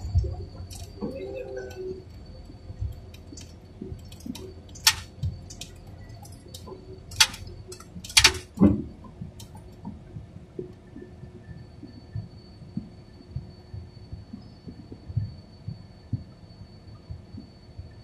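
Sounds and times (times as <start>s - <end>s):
faint high whine: 0.0s - 18.0s
sharp clicks and knocks: 2.9s - 8.8s.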